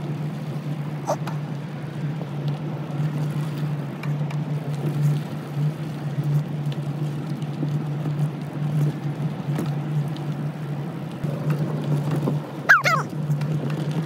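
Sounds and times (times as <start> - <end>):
ticks and crackles from trail: 0.0 - 14.0.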